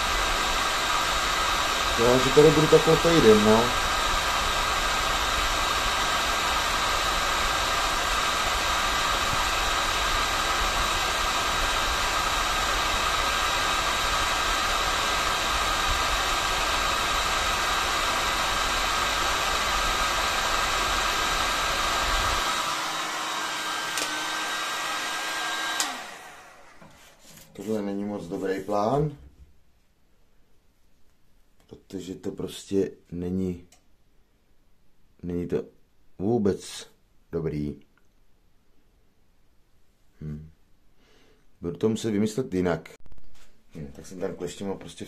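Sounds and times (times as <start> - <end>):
hot-air gun blowing: 0.0 - 27.2.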